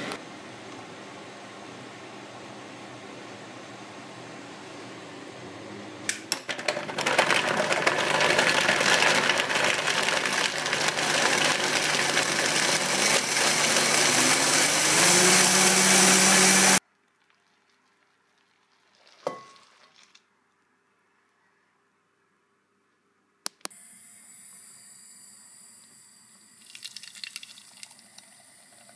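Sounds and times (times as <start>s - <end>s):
blender motor running: 6.6s - 16.8s.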